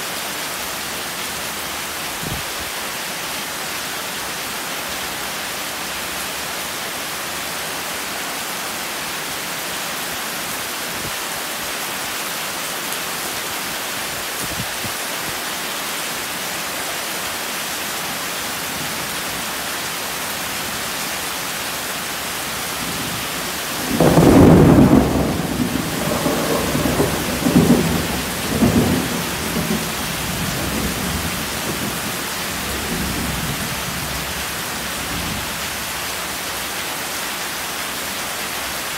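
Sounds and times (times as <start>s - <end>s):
heavy rain pouring: 0.0s - 38.9s
thunder rumbling: 22.8s - 34.4s.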